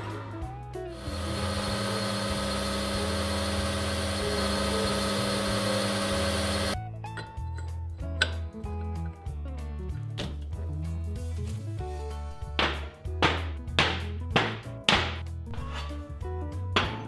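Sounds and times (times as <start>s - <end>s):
metal lathe cutting hiss: 1.0s - 6.8s.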